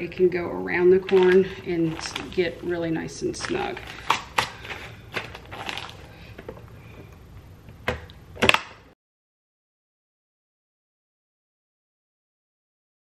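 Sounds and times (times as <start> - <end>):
plastic bag rustling: 0.9 - 7.1.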